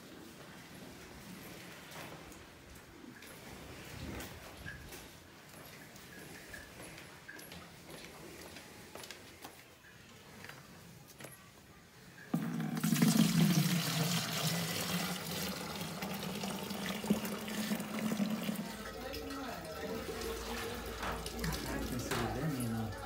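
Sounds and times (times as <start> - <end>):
milk pouring into a can: 12.4 - 22.7.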